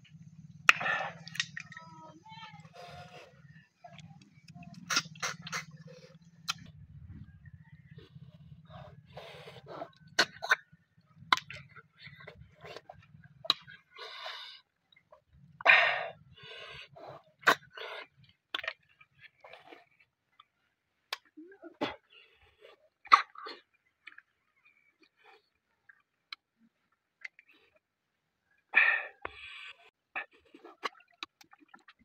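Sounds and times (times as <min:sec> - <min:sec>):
loud slurps: 0:00.7 - 0:01.7, 0:02.6 - 0:06.7, 0:08.2 - 0:10.6
lip-smacks: 0:00.7 - 0:01.9, 0:02.6 - 0:06.8, 0:08.6 - 0:10.6, 0:11.2 - 0:14.3.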